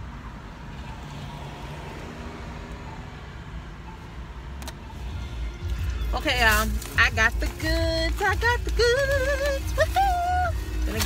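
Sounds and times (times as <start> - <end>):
car cabin rumble: 4.6 - 11.0.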